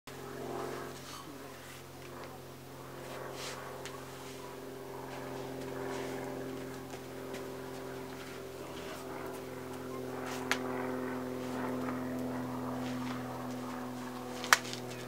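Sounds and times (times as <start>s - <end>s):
low drone: 0.1s - 15.0s.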